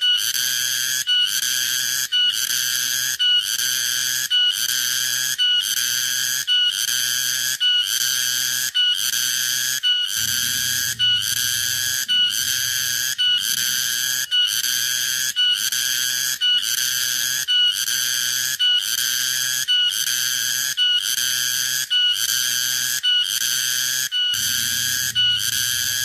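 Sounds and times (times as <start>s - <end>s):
cicada shrill buzzing: 10.1s - 17.4s.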